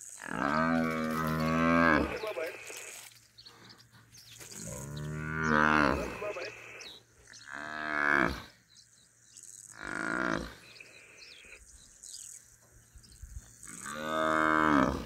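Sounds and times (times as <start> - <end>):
buffalo bellowing in distress: 0.2 - 2.7, 4.7 - 6.8.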